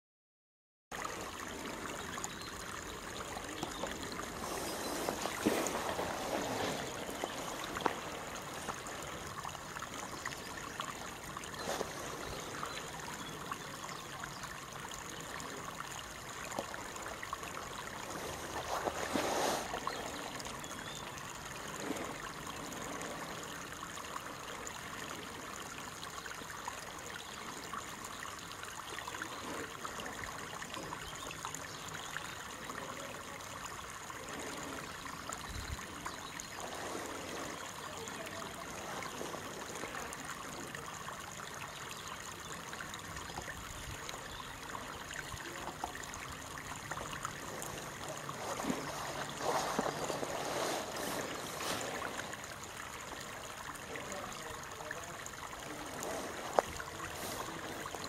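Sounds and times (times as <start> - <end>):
rushing trickling water: 0.9 - 58.0.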